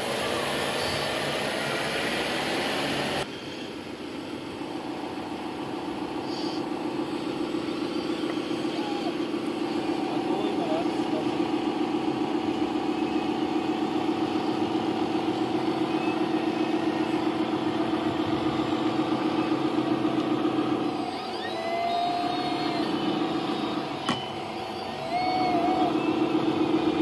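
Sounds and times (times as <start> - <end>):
toy truck motor droning hum: 0.0 - 27.0
faint whistling chirps: 5.8 - 27.0.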